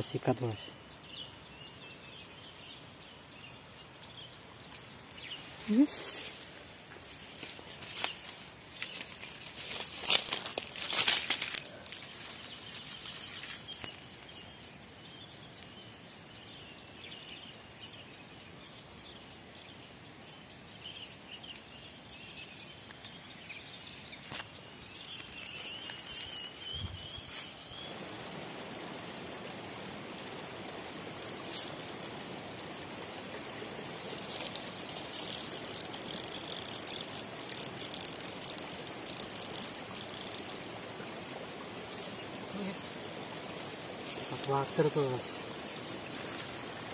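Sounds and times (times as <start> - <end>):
high insect drone: 0.0 - 18.4, 23.6 - 46.9
birds chirping: 0.0 - 46.9
grass rustling: 4.4 - 15.4, 22.4 - 46.9
stream water rushing: 27.8 - 46.9.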